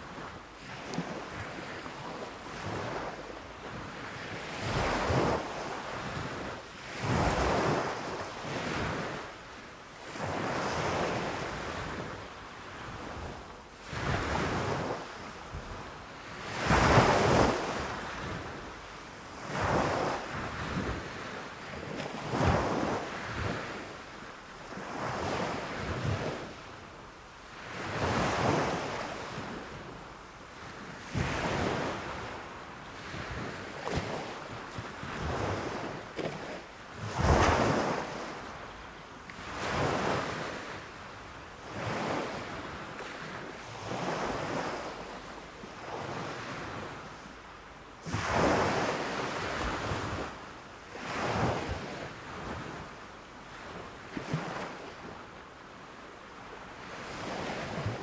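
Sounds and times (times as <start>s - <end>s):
surf breaking on a beach: 0.0s - 9.4s, 10.0s - 18.6s, 30.7s - 38.6s, 48.0s - 52.8s.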